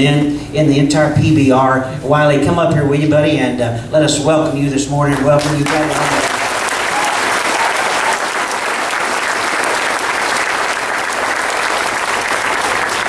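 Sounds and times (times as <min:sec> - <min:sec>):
audience applauding: 0:05.1 - 0:13.0.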